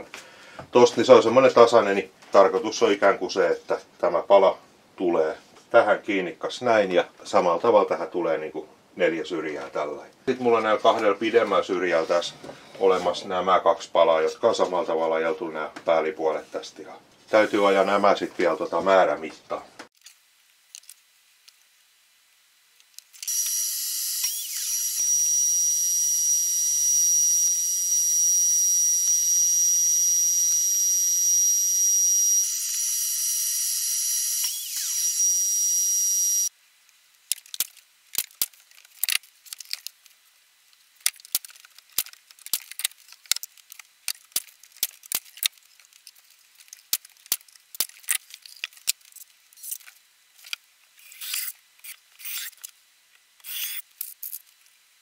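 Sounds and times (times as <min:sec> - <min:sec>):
power saw cutting wood: 0:23.3 - 0:25.1, 0:32.4 - 0:36.4.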